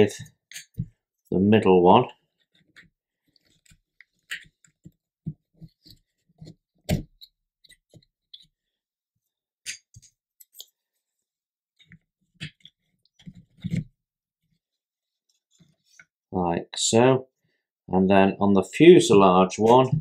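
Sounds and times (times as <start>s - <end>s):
clicks and knocks of parts handled: 0.2s - 0.9s, 2.4s - 5.0s, 9.6s - 10.8s.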